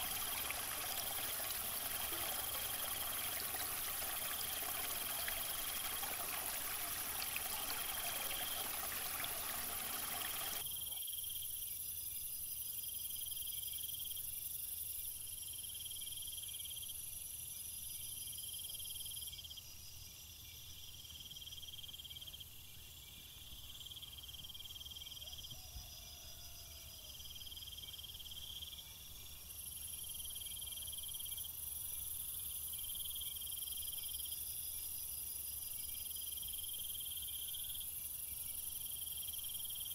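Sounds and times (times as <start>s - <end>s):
waterfall splashing onto rocks: 0.0s - 10.6s
insects chirping in trills: 0.0s - 39.9s.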